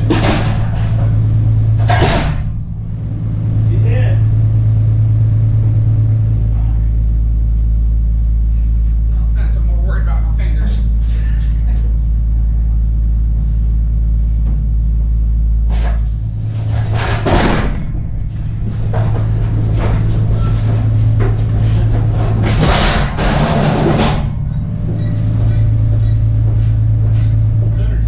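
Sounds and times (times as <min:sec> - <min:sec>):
pallet jack wheels rattling: 0:00.0 - 0:06.1, 0:15.7 - 0:28.0
low drone: 0:00.0 - 0:28.0.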